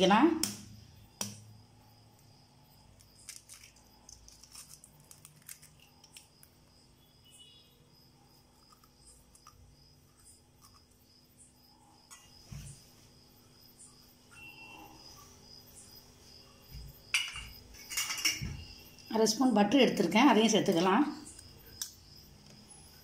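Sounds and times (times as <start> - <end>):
crickets chirping: 0.0 - 23.0
egg shell cracking: 2.2 - 6.7, 8.6 - 11.0.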